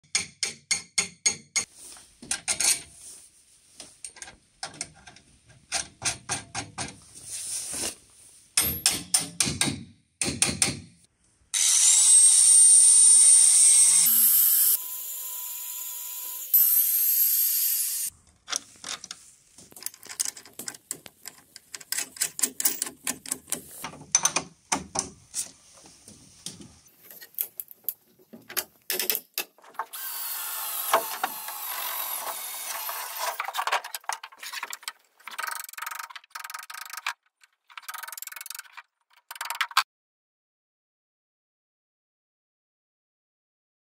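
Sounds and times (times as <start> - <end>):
clicking and rattling of screws: 2.3 - 2.8, 4.0 - 7.0, 18.2 - 25.2, 27.1 - 30.0, 30.8 - 39.8
electric drill motor whining: 11.6 - 18.1, 29.9 - 33.4.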